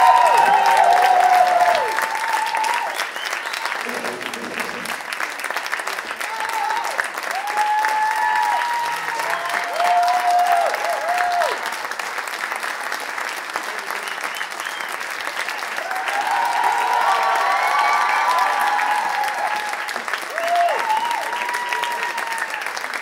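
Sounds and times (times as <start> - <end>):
high cheering calls: 0.0 - 5.0, 15.8 - 22.7
audience applauding: 0.0 - 23.0.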